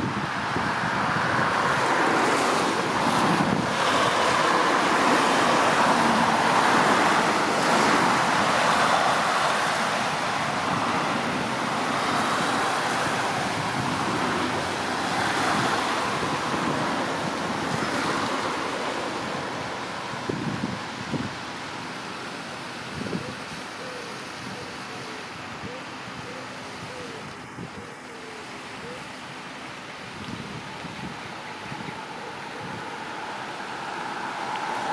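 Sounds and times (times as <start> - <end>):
wind on microphone: 0.0 - 21.7, 22.8 - 23.7, 26.7 - 28.0, 30.0 - 34.9.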